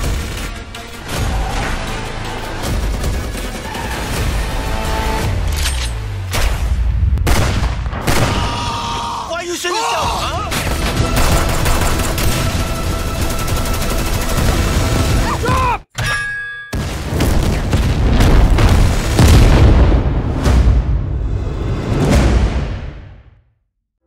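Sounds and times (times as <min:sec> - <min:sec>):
rapid gunfire: 0:02.5 - 0:04.4, 0:10.5 - 0:15.2, 0:16.8 - 0:19.6
booming impacts: 0:16.8 - 0:23.3.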